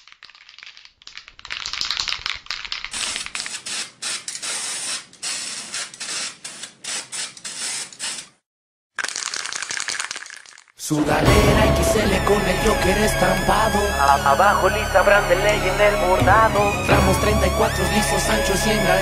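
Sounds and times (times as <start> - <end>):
spray paint can hissing: 1.6 - 8.4, 9.0 - 10.7.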